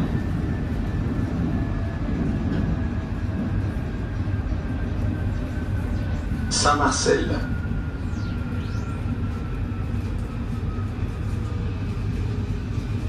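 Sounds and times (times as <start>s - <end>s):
train wheels rumbling on rail: 0.0s - 13.0s
faint high whine: 4.4s - 12.9s.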